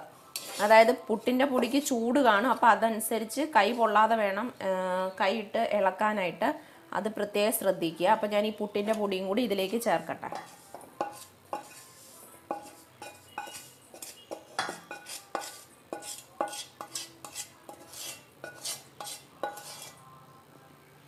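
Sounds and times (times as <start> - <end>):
wooden spatula scraping a pan: 0.3 - 1.9, 10.3 - 20.0.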